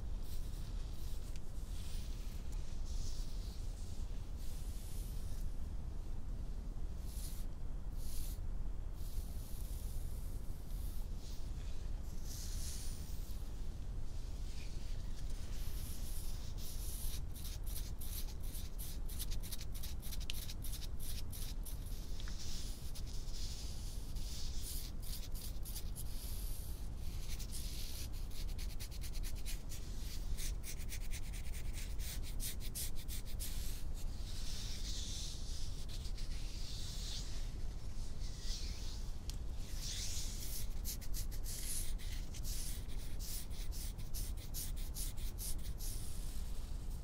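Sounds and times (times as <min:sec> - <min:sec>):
soft swishing rub: 0:00.0 - 0:05.7, 0:09.6 - 0:16.8, 0:33.3 - 0:43.1.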